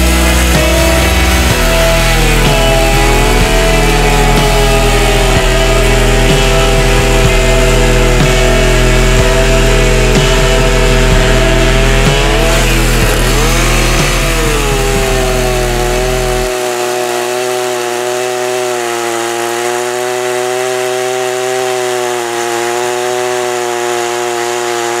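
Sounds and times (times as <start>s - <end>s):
chainsaw cutting wood: 0.0s - 25.0s.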